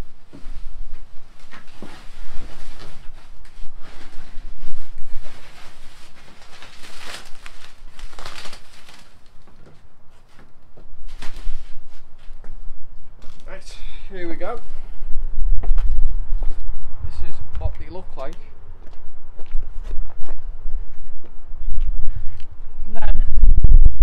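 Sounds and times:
foam sheet rustling and crinkling: 0.0 - 12.5, 13.2 - 13.7.

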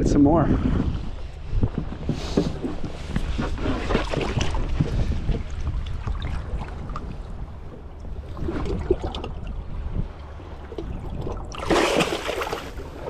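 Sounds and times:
wind on microphone: 0.0 - 13.0
lapping water: 8.0 - 13.0
fish splashing: 10.6 - 13.0.

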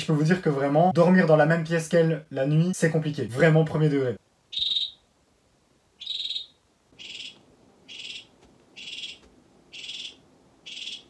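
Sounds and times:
frogs calling buzzily: 4.5 - 5.0, 6.0 - 11.0.

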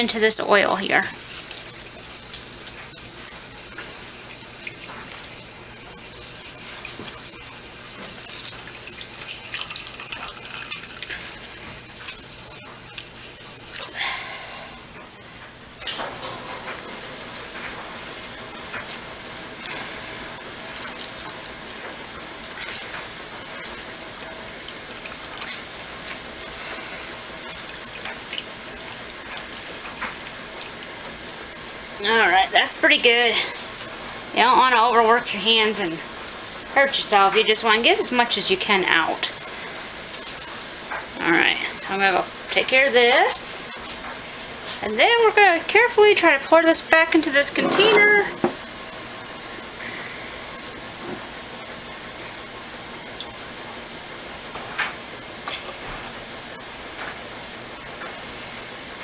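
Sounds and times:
oil dripping: 1.2 - 14.0, 19.6 - 32.0
oil trickling into metal bowl: 8.1 - 12.3.

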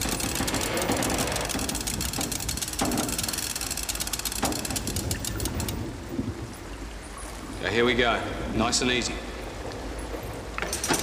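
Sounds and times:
engine running with rapid ticking: 0.0 - 5.8.

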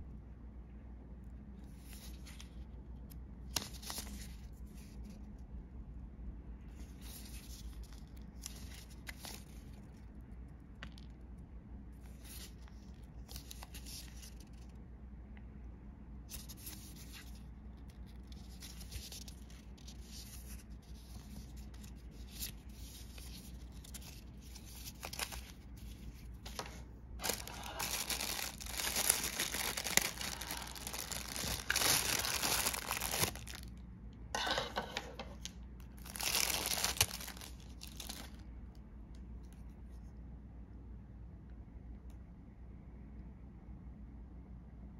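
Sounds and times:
packaging rustling and tearing: 16.4 - 33.7, 35.4 - 38.4.

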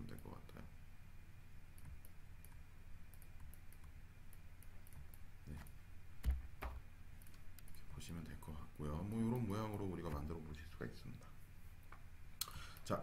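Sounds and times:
computer mouse clicks: 1.8 - 6.4, 7.2 - 7.9.

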